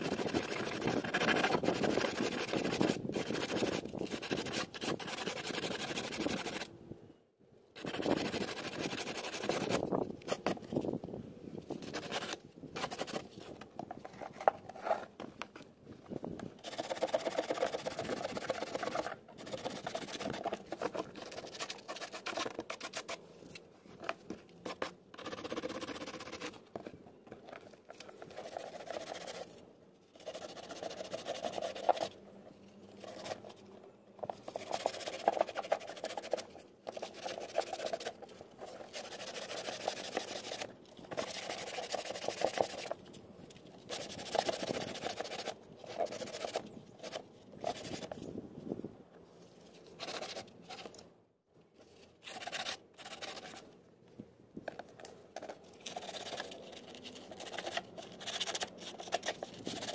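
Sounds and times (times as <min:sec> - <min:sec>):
sandpaper scraping fibreglass: 0:00.0 - 0:06.7, 0:07.8 - 0:11.0, 0:11.7 - 0:15.1, 0:16.6 - 0:23.2, 0:24.6 - 0:26.6, 0:28.1 - 0:29.6, 0:30.2 - 0:32.2, 0:34.4 - 0:43.0, 0:43.8 - 0:48.2, 0:50.0 - 0:50.9, 0:52.2 - 0:53.6, 0:55.8 - 0:59.9.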